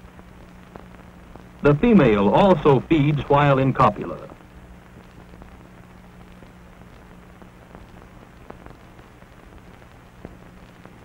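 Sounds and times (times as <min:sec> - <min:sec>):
faint clicks and crackles: 0:00.0 - 0:01.6, 0:03.8 - 0:11.0
film soundtrack hiss: 0:00.0 - 0:11.0
low hum: 0:00.6 - 0:04.5.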